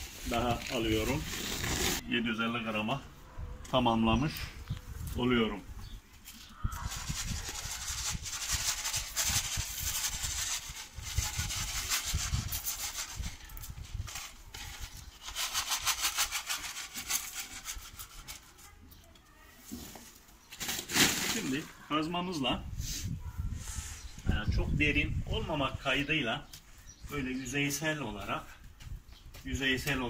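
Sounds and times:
fertilizer pellets rattling hiss: 0:06.7 - 0:13.4, 0:14.2 - 0:17.8.

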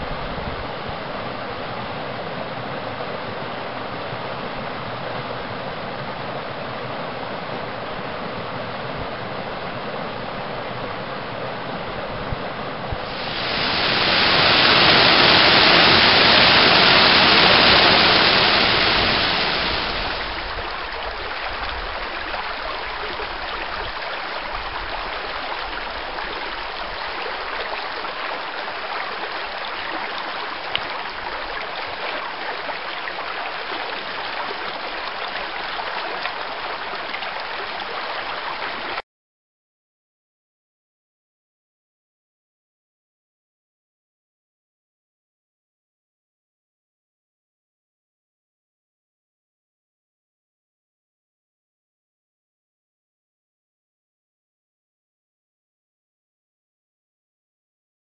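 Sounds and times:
creek rushing over rocks: 0:13.0 - 0:39.0
waterfall pouring: 0:13.1 - 0:21.6.

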